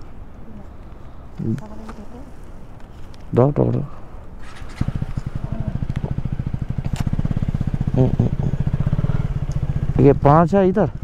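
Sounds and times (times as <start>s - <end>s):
motorcycle engine starting and idling: 4.3s - 11.0s.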